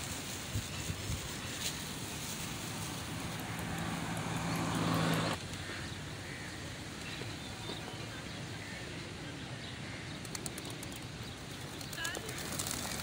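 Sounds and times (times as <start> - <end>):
outdoor background noise: 0.0 - 13.0
vehicle engine hum: 1.5 - 8.2.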